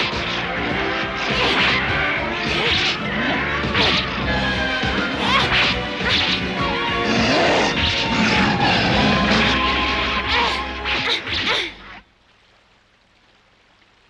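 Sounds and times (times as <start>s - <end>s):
background music: 0.0s - 11.7s.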